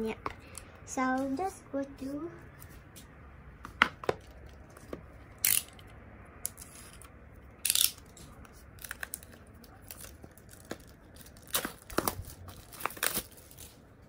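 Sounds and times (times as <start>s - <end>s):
plastic wrap ripping: 8.8s - 13.8s.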